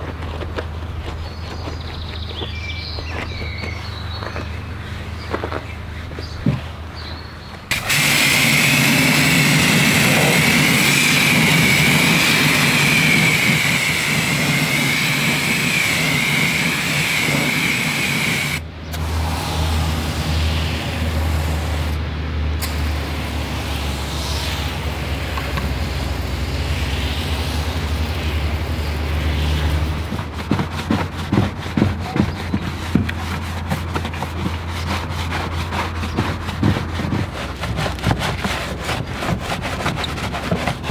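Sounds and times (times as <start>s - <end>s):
brush scrubbing: 7.7s - 18.6s, 29.1s - 40.9s
high-pressure spray hissing: 7.7s - 22.0s
pressure washer humming: 7.7s - 22.0s, 22.6s - 33.5s.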